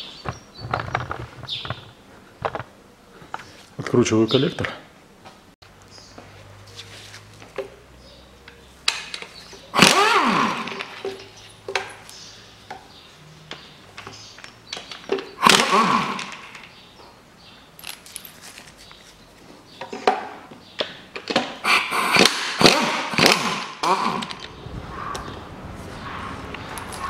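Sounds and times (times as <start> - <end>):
impact wrench bursts: 9.7 - 11.2, 15.4 - 16.6, 21.6 - 24.4.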